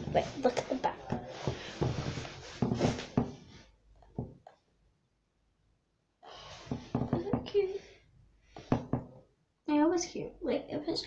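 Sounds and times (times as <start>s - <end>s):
faint knocks: 6.6s - 7.6s, 8.6s - 9.2s.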